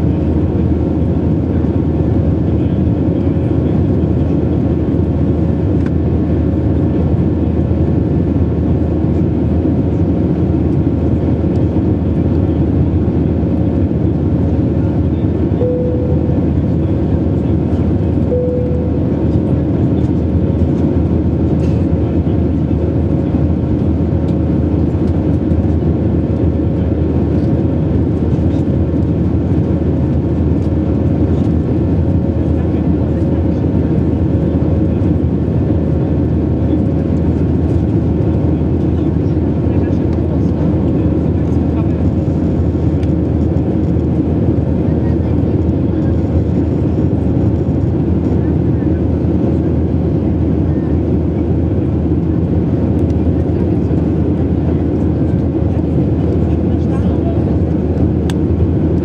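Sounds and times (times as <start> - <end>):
aircraft cabin engine rumble: 0.0 - 59.0
steady hum: 14.8 - 21.2.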